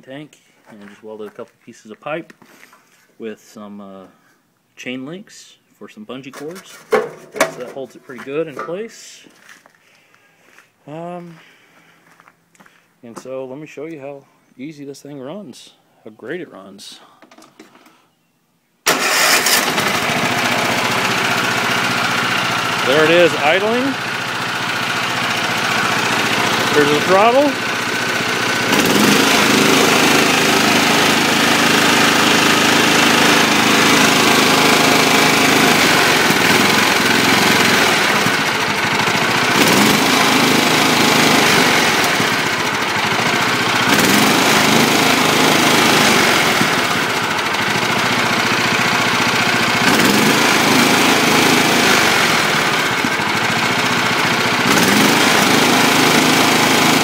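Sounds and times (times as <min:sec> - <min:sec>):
lawn mower engine revving: 0:06.4 - 0:07.9, 0:18.9 - 0:57.0.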